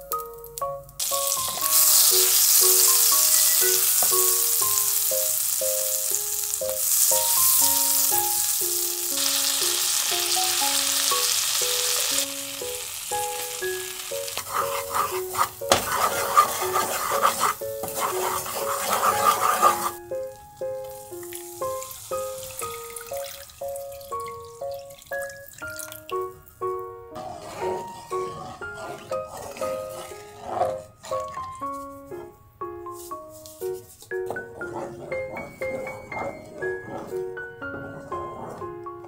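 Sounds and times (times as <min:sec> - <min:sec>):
butter sizzling in pan: 0:01.0 - 0:24.4, 0:27.2 - 0:31.1
wooden spatula scraping pan: 0:14.2 - 0:20.0, 0:27.2 - 0:39.0.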